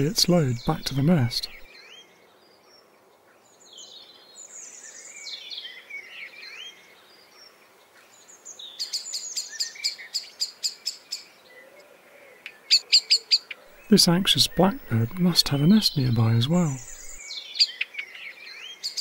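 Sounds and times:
faint warbling birdsong: 0.0s - 19.0s
blackbird alarm calls: 12.5s - 18.2s.

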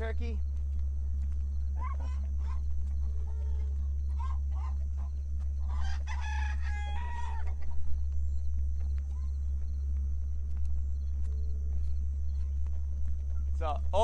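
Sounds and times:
low rumble: 0.0s - 14.0s
chickens clucking: 1.5s - 9.4s
rooster crowing: 1.8s - 8.1s.

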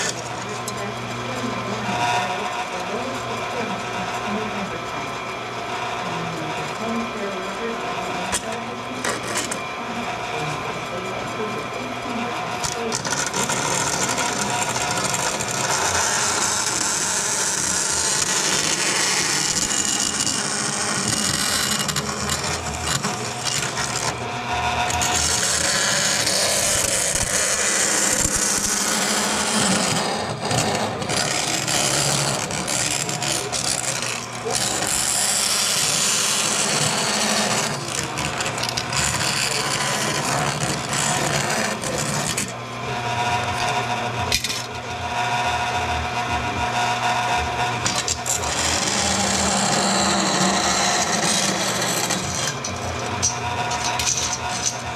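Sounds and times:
bandsaw blade rasping metal: 0.0s - 0.5s, 8.4s - 9.6s, 12.6s - 42.6s, 47.8s - 54.9s
saw motor humming: 0.0s - 54.9s.

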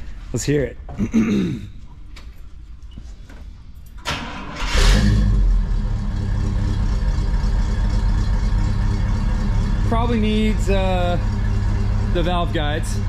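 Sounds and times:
engine starter cranking: 4.0s - 6.6s
engine idling: 4.6s - 13.0s.

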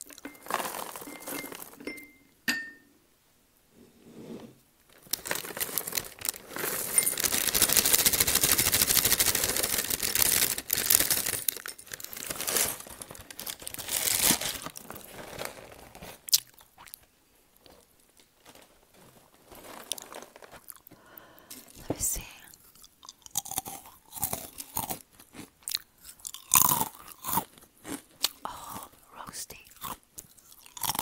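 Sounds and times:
plastic bag rustling: 0.1s - 1.9s, 4.8s - 16.3s, 17.6s - 21.0s
cereal pouring into bowl: 0.3s - 1.8s, 5.0s - 13.0s.

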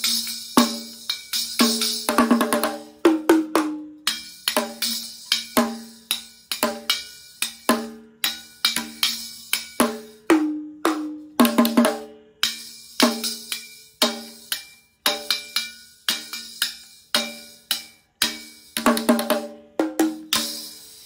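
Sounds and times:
toy plastic drums struck: 0.0s - 21.0s.

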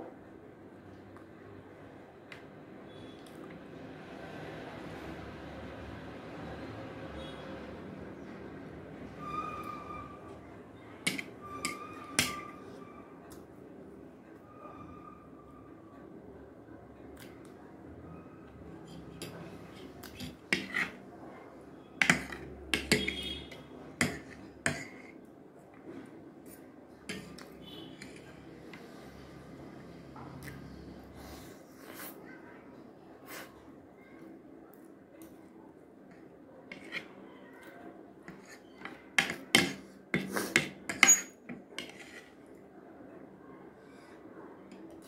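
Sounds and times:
cutlery clinking on plate: 11.0s - 12.5s, 27.1s - 28.3s, 38.3s - 42.2s
cutlery scraping a plate: 11.0s - 12.8s, 18.8s - 21.0s, 22.0s - 25.2s, 26.4s - 28.9s, 36.7s - 37.2s, 38.3s - 42.5s.

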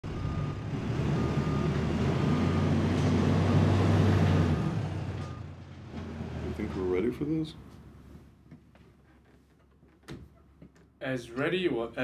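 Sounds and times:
reversing alarm beeping: 0.0s - 4.0s
forklift engine running: 0.0s - 7.0s.

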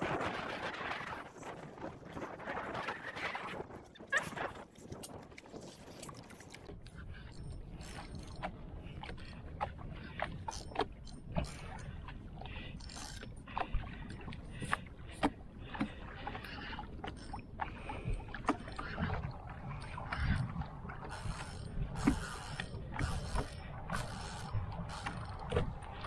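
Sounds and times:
water lapping against wooden hull: 0.0s - 26.0s.

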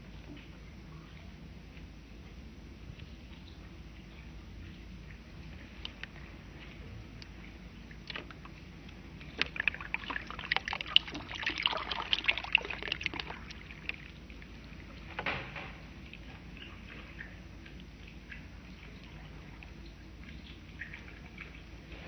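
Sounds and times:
water trickling onto plastic: 5.1s - 15.3s
crackling spatters: 7.2s - 14.8s
water pouring into a plastic tub: 9.3s - 14.2s.

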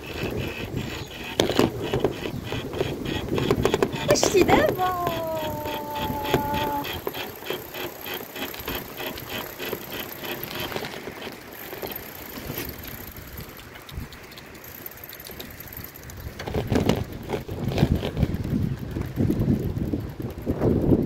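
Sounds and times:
wind buffeting microphone: 0.0s - 11.0s, 15.7s - 21.0s
bicycle rolling noise: 0.0s - 21.0s
bicycle ticking: 0.0s - 21.0s.

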